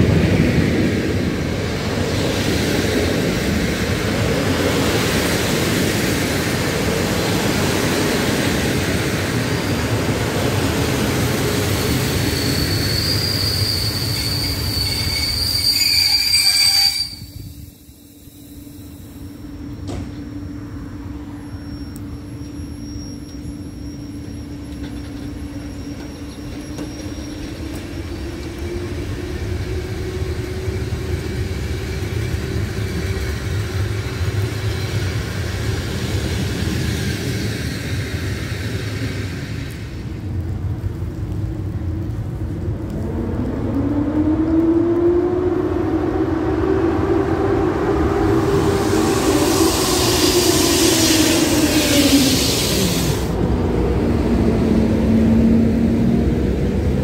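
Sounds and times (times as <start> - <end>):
train wheels on rails: 0.0 - 57.0
high wheel squeal: 11.8 - 19.6, 21.3 - 27.8.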